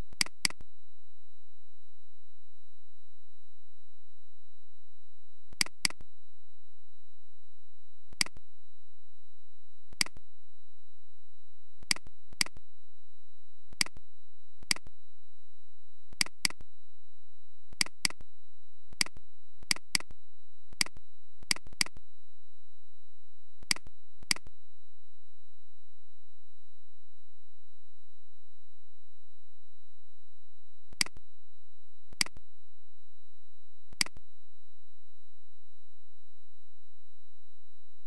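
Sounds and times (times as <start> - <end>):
faint high-pitched whine: 0.0 - 38.0
computer mouse clicking: 0.2 - 0.6, 5.6 - 6.0, 11.9 - 12.6, 16.2 - 16.6, 17.8 - 18.2, 19.0 - 20.1, 20.8 - 22.0, 31.0 - 31.2, 34.0 - 34.2.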